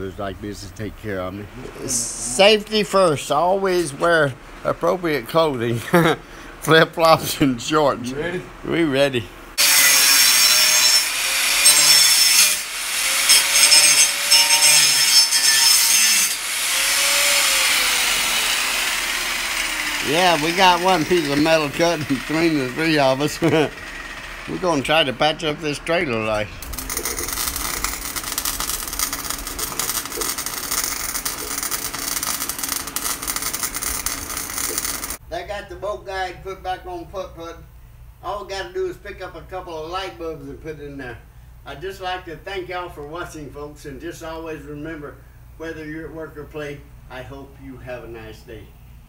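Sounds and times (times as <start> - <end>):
arc welding crackling hiss: 1.6 - 3.9, 9.6 - 35.2
angle grinder cutting metal: 9.6 - 35.2.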